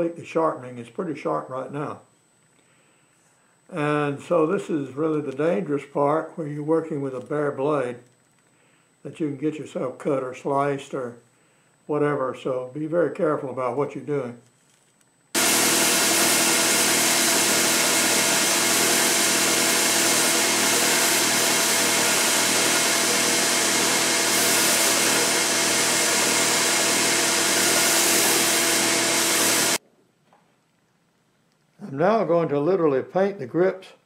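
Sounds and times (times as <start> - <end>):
belt grinder grinding steel blade: 15.4 - 29.8.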